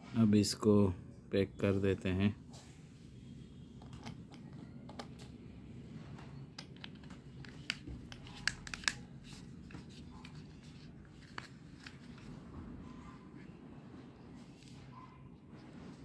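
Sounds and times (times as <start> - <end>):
plastic clicks and taps: 6.6 - 9.0.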